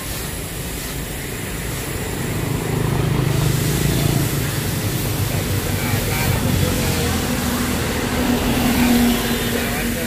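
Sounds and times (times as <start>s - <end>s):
street traffic: 0.0s - 10.0s
motorbike engine passing: 1.6s - 10.0s.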